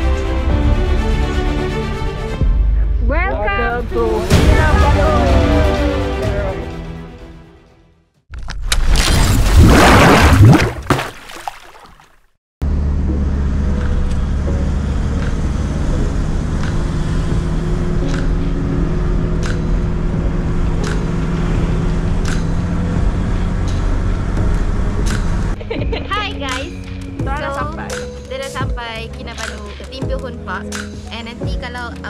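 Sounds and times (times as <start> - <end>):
road noise: 12.6 - 32.0
vehicle engine running: 12.6 - 32.0.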